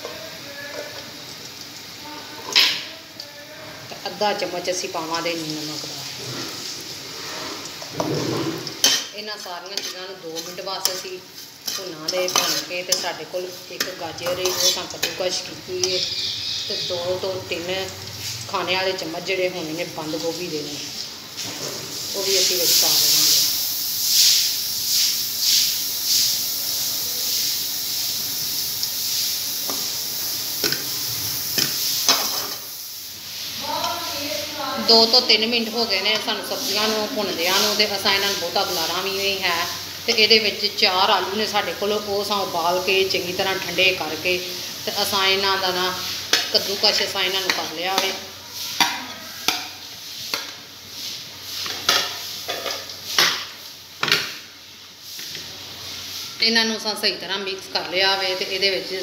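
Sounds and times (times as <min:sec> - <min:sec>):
vegetables sizzling in oil: 0:00.0 - 0:59.0
metal spatula scraping frying pan: 0:06.1 - 0:17.3, 0:30.6 - 0:32.8, 0:45.1 - 0:53.6
spatula knocking on pan: 0:48.8 - 0:49.8.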